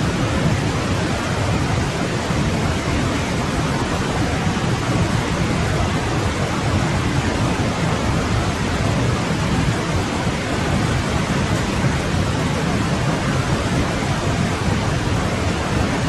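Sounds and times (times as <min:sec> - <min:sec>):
stream water rushing: 0:00.0 - 0:16.0.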